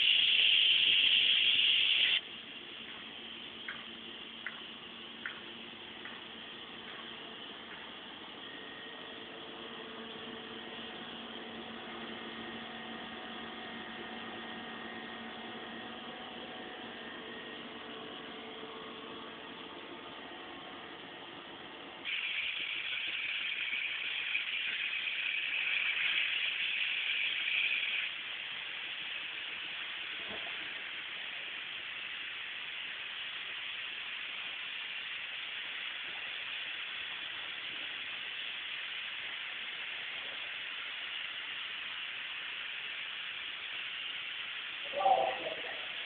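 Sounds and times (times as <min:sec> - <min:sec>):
pressurised gas hissing: 0:00.0 - 0:08.5, 0:22.0 - 0:46.0.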